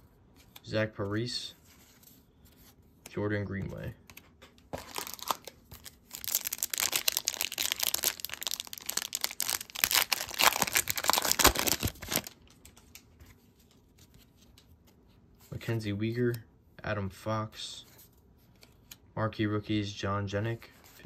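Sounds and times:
wrapper tearing and crinkling: 4.8s - 12.9s.

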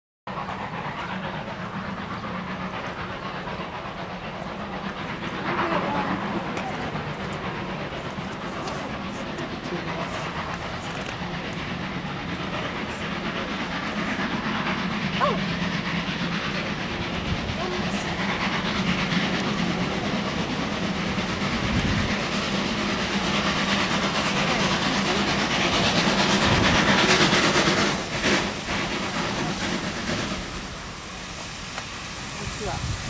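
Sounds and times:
steam locomotive approaching: 0.3s - 33.0s.

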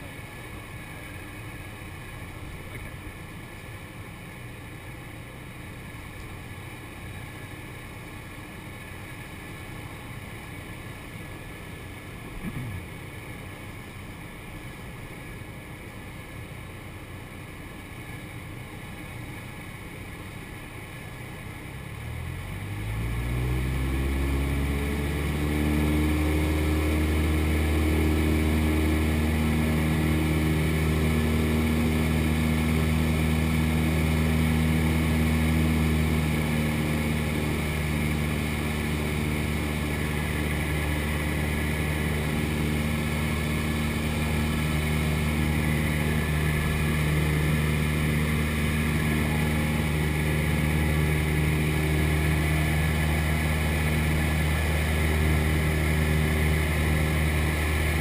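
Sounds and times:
plane engine and propeller droning: 0.0s - 58.0s.

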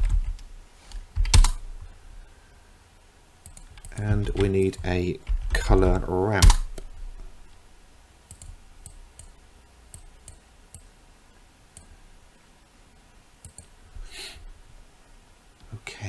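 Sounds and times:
soft hiss: 0.1s - 16.0s
computer mouse clicks: 3.4s - 4.6s, 8.3s - 10.9s, 13.4s - 13.7s.

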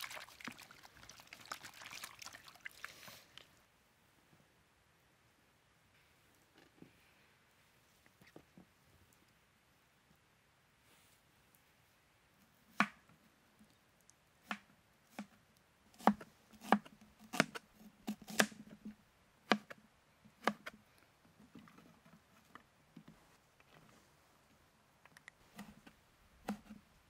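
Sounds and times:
knife chopping vegetables: 16.0s - 18.6s, 20.4s - 20.8s.

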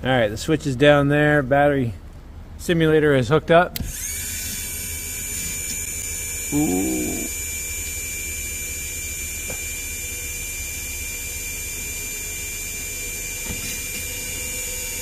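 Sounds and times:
hydraulic pump humming and whining: 3.8s - 15.0s.

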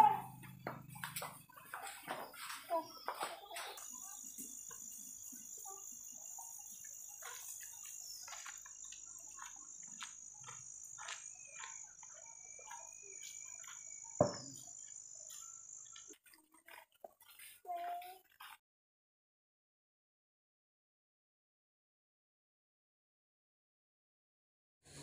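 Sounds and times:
high-pitched insect trill: 2.3s - 16.9s.

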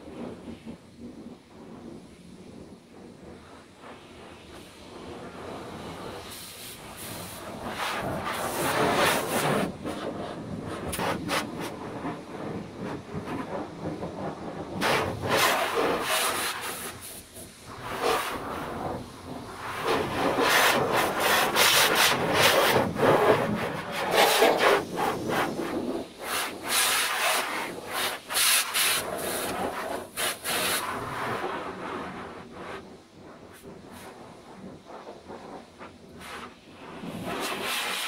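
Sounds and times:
rubbing strokes on car body: 14.8s - 19.0s, 19.7s - 32.0s, 35.9s - 38.0s.

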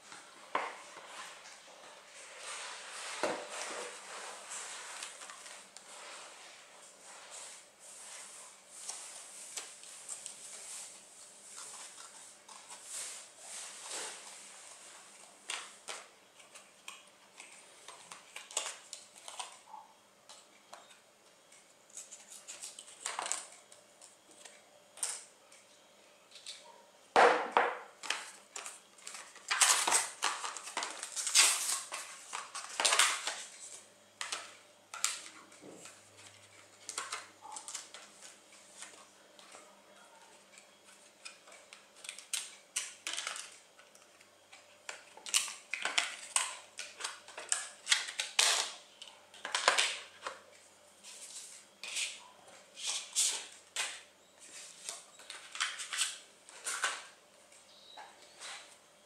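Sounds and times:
packaging rustling: 28.0s - 39.6s.

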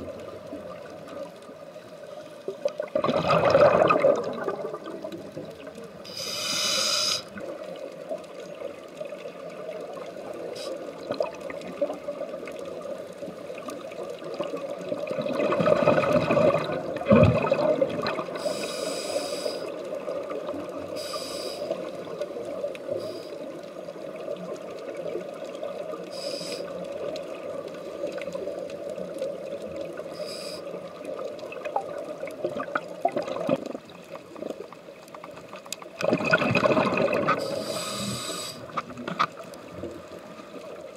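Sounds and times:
steady underwater drone: 0.0s - 40.9s
underwater bubbling: 0.0s - 40.9s
diver breathing through regulator: 6.1s - 7.3s, 18.4s - 19.7s, 21.0s - 21.8s, 30.2s - 30.7s, 37.4s - 38.8s.

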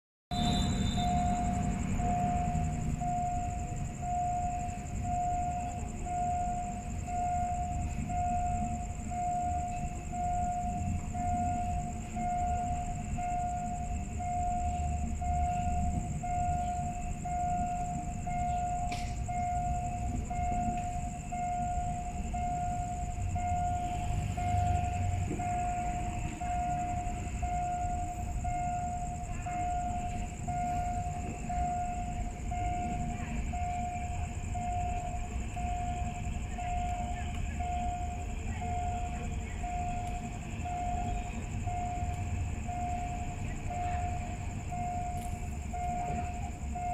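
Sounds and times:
high-pitched whine: 0.3s - 46.9s
level crossing warning bell: 0.3s - 46.9s
steady low rumble: 0.3s - 46.9s.

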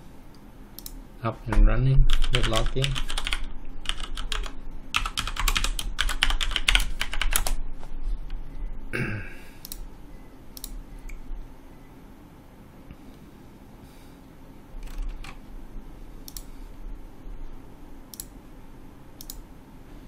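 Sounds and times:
single clicks: 0.3s - 1.0s
computer keyboard typing: 2.1s - 7.6s, 14.8s - 15.4s.

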